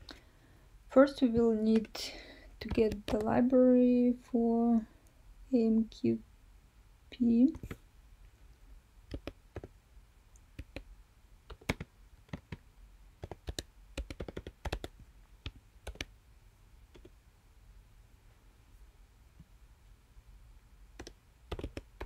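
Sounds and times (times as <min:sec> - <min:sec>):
typing on computer keyboard: 0:02.6 - 0:03.4, 0:09.1 - 0:09.7, 0:10.6 - 0:10.8, 0:11.5 - 0:12.6, 0:13.2 - 0:16.1, 0:16.9 - 0:17.1, 0:21.0 - 0:22.0.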